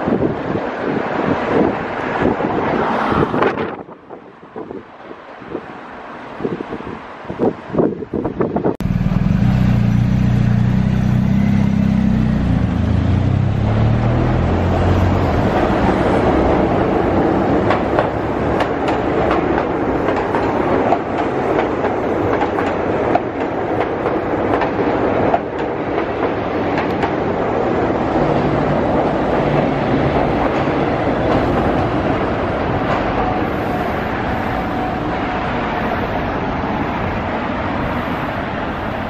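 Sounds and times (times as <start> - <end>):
train wheels rumbling on rail: 6.4 - 39.0
electric train low hum: 8.5 - 39.0
wheels clicking over rail joints: 15.2 - 27.4.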